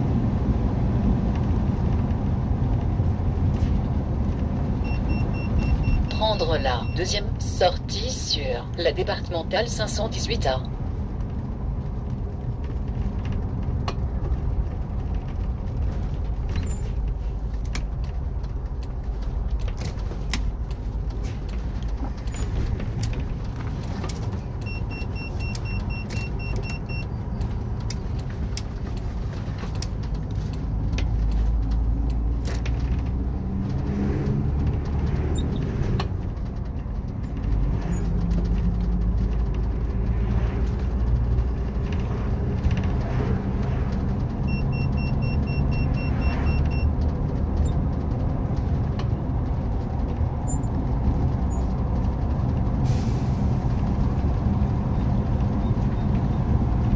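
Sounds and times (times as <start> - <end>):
bus engine and road rumble: 0.0 - 56.9
high beeps: 4.8 - 7.6, 24.6 - 27.1, 44.5 - 46.9
small rattles and clicks: 35.8 - 43.1.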